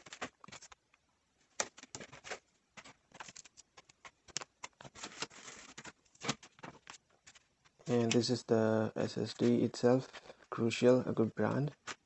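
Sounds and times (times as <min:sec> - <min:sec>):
packaging rustling: 0:00.0 - 0:08.0
packaging clicks and taps: 0:01.6 - 0:08.2.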